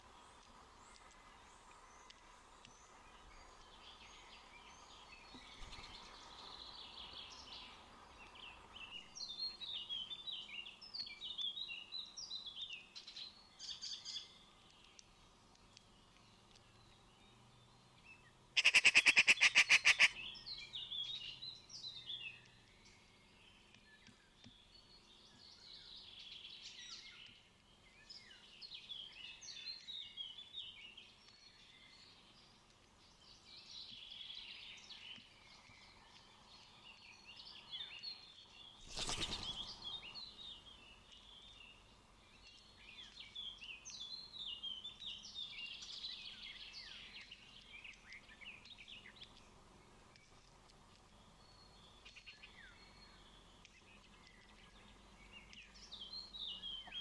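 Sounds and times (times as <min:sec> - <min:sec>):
birds chirping: 0:00.1 - 0:57.0
magpie harsh rattling chatter: 0:18.6 - 0:20.1.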